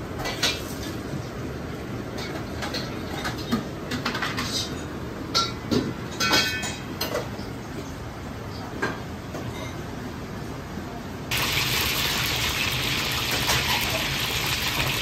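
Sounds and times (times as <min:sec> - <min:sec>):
steady kitchen rumble: 0:00.0 - 0:15.0
dishes clattering: 0:02.2 - 0:07.4.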